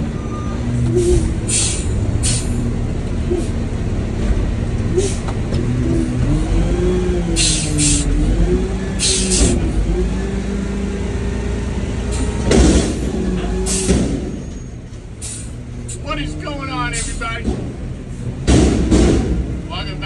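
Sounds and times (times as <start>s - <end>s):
garbage truck engine revving: 0.0s - 20.0s.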